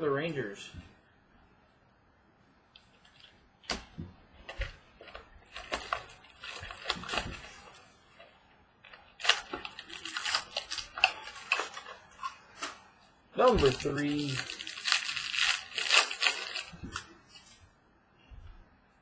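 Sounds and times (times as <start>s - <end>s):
wrapper crinkling and tearing: 4.4s - 17.6s.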